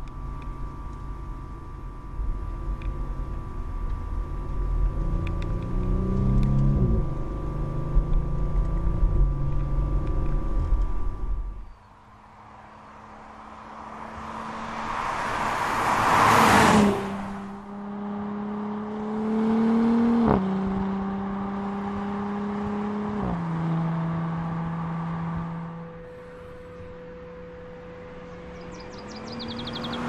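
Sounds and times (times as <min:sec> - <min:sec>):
car engine accelerating: 0:00.0 - 0:11.7, 0:12.4 - 0:30.0
car rushing past: 0:12.4 - 0:27.0, 0:28.4 - 0:30.0.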